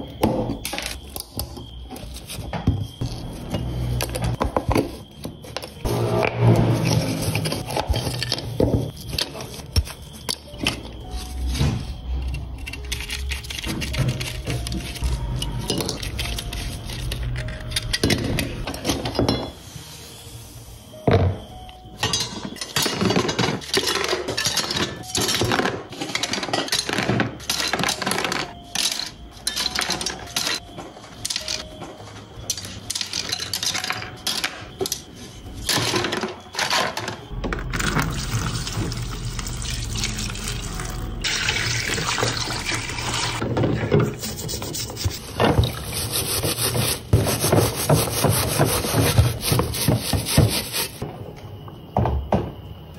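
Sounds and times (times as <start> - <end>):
metal and plastic parts clinking: 6.9 - 19.5, 22.0 - 38.5
liquid pouring: 37.7 - 43.4.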